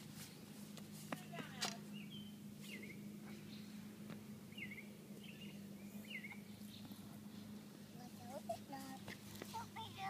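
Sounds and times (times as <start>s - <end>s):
steady low hum: 0.0s - 10.0s
faint bird chirps: 4.5s - 7.6s.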